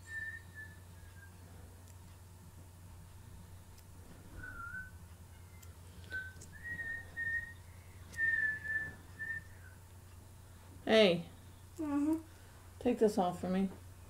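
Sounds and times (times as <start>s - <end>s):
person whistling: 0.0s - 1.4s, 4.4s - 9.8s.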